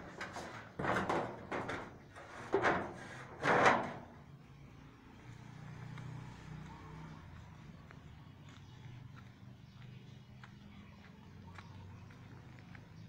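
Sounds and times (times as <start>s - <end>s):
footsteps crunching on gravel: 7.0s - 13.0s.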